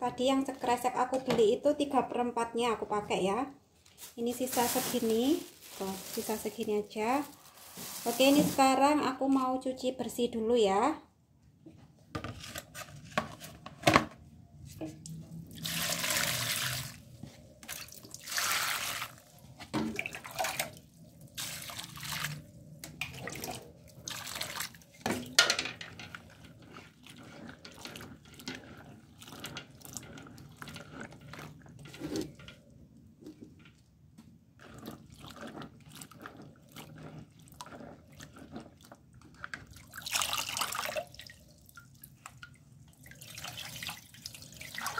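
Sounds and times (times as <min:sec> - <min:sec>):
water splashing and sloshing: 0:03.9 - 0:09.0, 0:14.7 - 0:44.9.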